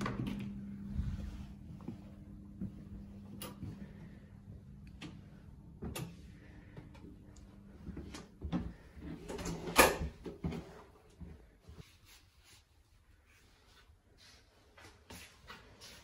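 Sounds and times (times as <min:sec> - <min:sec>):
faint low hum: 0:00.0 - 0:10.2.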